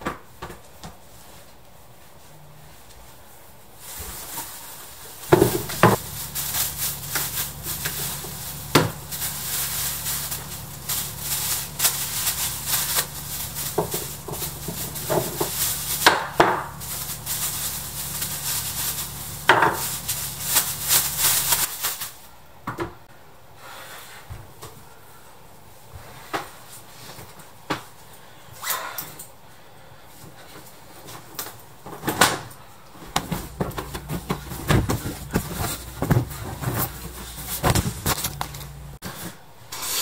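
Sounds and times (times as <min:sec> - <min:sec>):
low steady hum: 0:01.9 - 0:21.7, 0:32.7 - 0:39.0
tissue paper crinkling: 0:03.8 - 0:22.2, 0:33.1 - 0:39.0.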